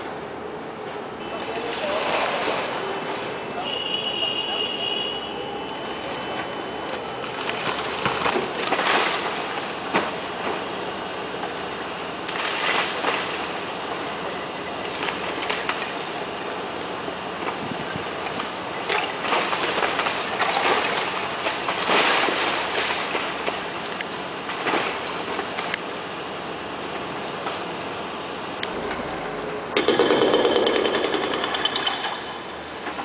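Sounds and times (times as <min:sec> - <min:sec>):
mechanical rumble: 0:23.2 - 0:33.0
demolition clatter: 0:28.8 - 0:33.0.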